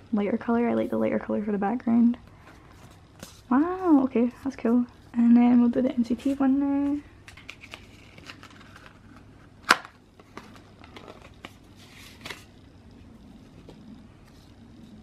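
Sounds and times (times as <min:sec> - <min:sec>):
paper rustling: 0:06.2 - 0:12.6
paper snap: 0:09.6 - 0:10.6.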